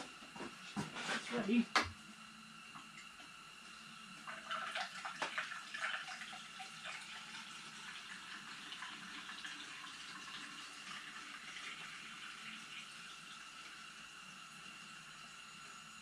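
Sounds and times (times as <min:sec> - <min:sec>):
liquid pouring: 0:04.2 - 0:15.0.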